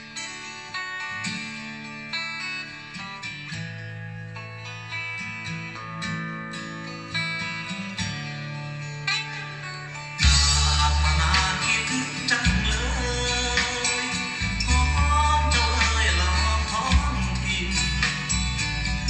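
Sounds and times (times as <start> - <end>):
plucked guitar music: 0.0 - 19.0
sustained low bass notes: 10.2 - 11.6, 12.4 - 13.8, 14.4 - 19.0.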